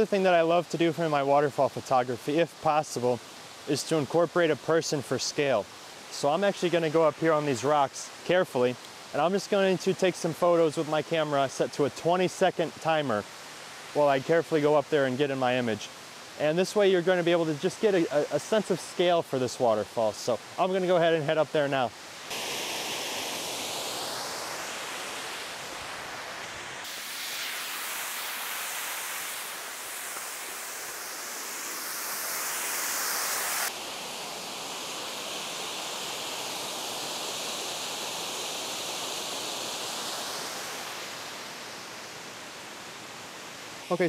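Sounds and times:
waterfall rushing: 20.2s - 44.0s.

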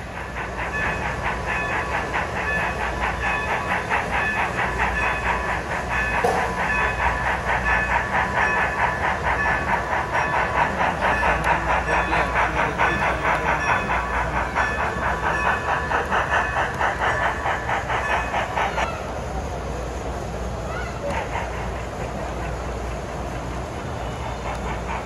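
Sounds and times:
model steam locomotive chuffing: 0.0s - 25.0s.

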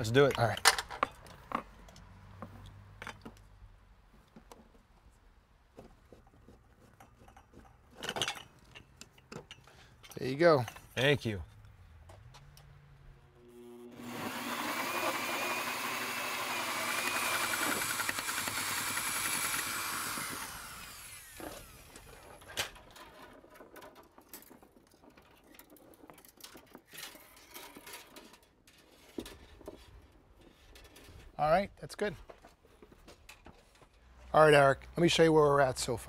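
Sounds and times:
electric drill cutting wood: 13.5s - 22.2s.

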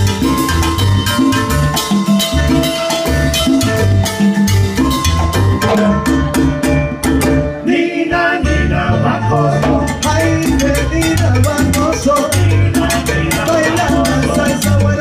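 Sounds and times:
congas and timbales beat: 0.0s - 15.0s
salsa band playing: 0.0s - 15.0s
person singing: 7.7s - 15.0s.

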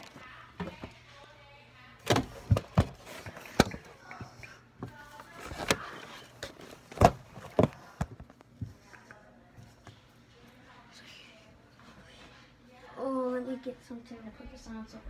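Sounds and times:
knocks and bumps of handling: 2.0s - 8.8s.

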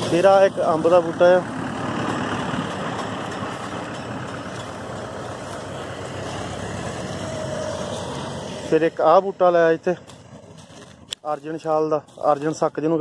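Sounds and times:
machine humming and rushing: 0.0s - 9.3s.

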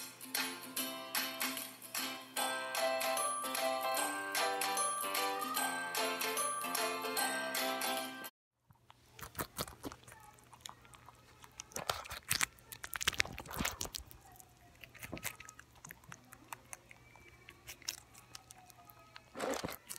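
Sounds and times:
rabbit chewing crunchily: 8.7s - 19.9s.

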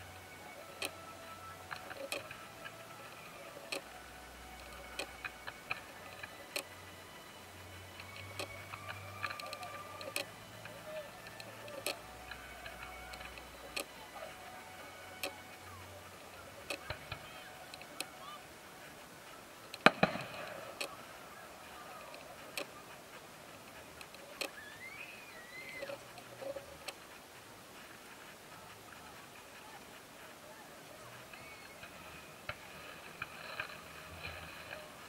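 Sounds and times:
fireworks popping and cracking: 19.8s - 21.8s.

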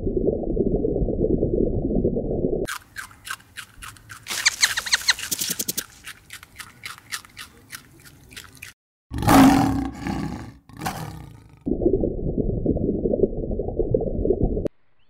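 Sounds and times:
rabbit chewing crunchily: 2.7s - 8.8s
lion roaring: 9.1s - 11.7s.

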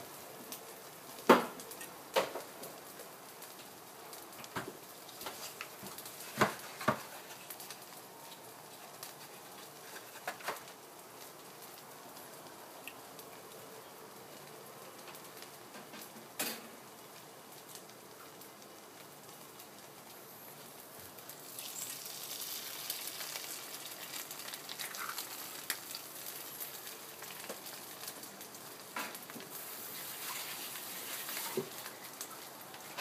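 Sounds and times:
slices frying in a pan: 15.3s - 33.0s.

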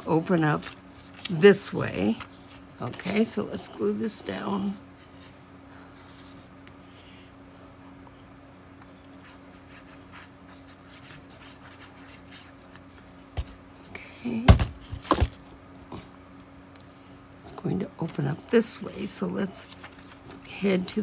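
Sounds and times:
faint steady hum: 0.0s - 21.0s
paper rustling and scratching: 0.1s - 3.7s, 6.0s - 7.1s, 9.1s - 13.5s, 18.0s - 21.0s.

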